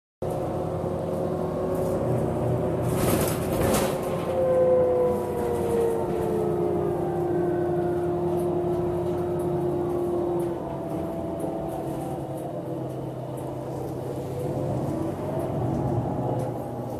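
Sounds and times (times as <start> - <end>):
bus engine droning: 0.2 - 16.9
whining tones: 3.8 - 16.9.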